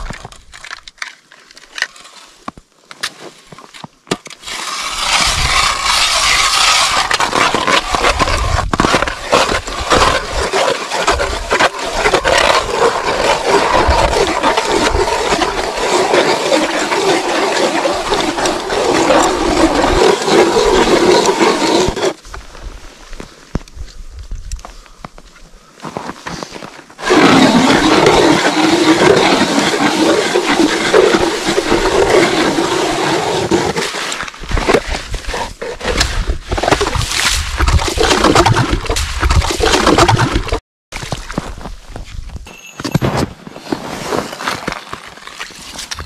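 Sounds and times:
ice auger grinding through ice: 4.4s - 22.2s, 27.0s - 40.6s, 43.6s - 46.0s.

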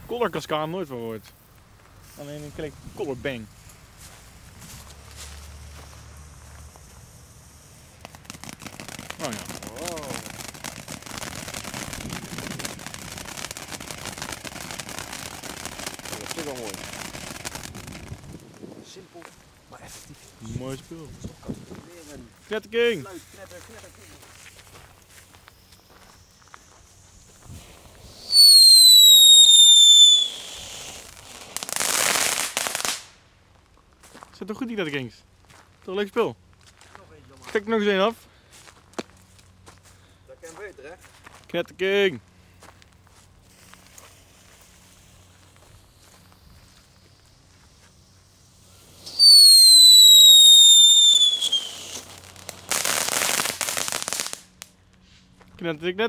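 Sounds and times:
firework crackling: 0.0s - 35.1s, 40.3s - 55.4s
firework hissing: 1.2s - 33.2s, 43.1s - 55.4s
firework whistling: 1.4s - 19.4s, 23.4s - 33.2s, 43.4s - 55.4s
firework whistle sliding down: 25.5s - 32.2s, 45.0s - 54.3s.

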